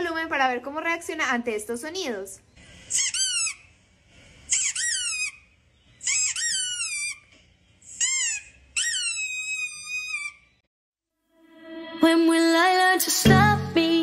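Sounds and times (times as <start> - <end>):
high-pitched whining squeaks: 4.4 - 10.6.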